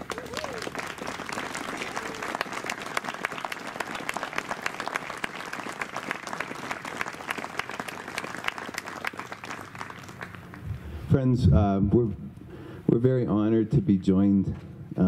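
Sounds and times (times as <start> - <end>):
crowd applauding: 0.0 - 10.7.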